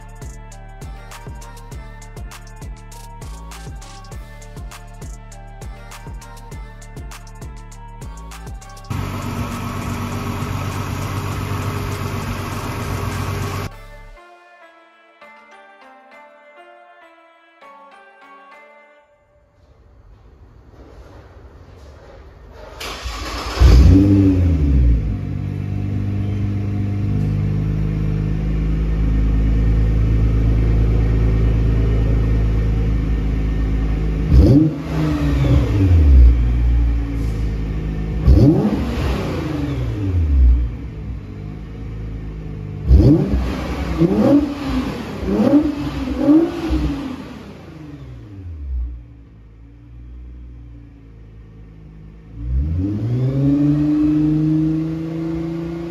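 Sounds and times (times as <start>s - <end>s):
car engine revving: 8.9s - 13.7s, 22.8s - 55.9s.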